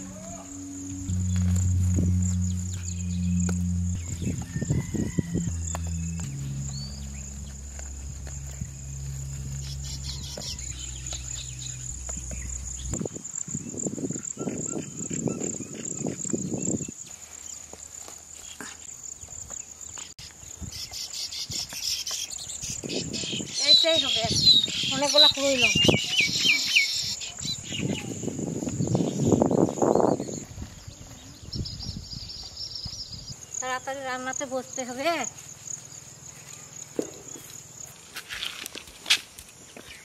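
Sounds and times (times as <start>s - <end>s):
soft low sounds: 0.0s - 13.1s
low sustained tones: 0.0s - 14.1s
crickets chirring: 0.0s - 40.0s.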